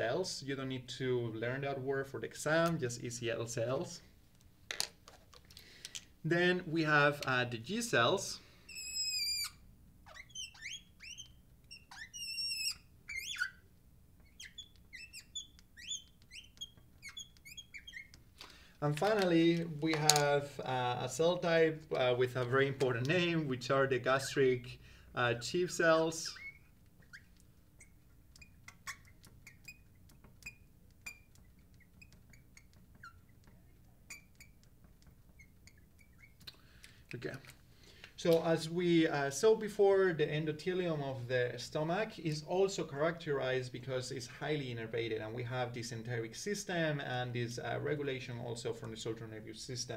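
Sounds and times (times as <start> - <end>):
marker squeaking on glass: 8.7 - 18.4, 26.1 - 36.5.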